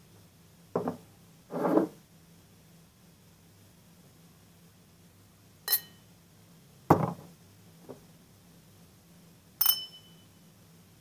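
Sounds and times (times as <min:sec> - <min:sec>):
glasses clinking with ringing chime: 0:05.7 - 0:06.0, 0:09.6 - 0:10.4.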